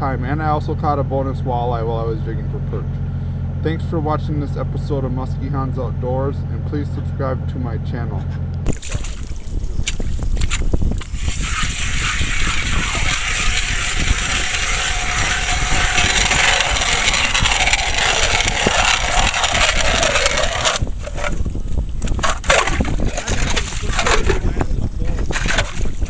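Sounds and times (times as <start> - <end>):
ice auger grinding ice: 9.9 - 24.5, 25.1 - 26.0.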